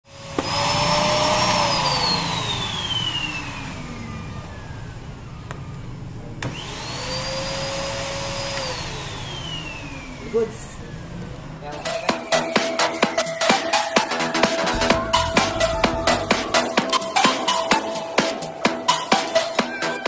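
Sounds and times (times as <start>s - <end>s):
vacuum cleaner motor running: 0.1s - 5.0s, 6.4s - 13.4s.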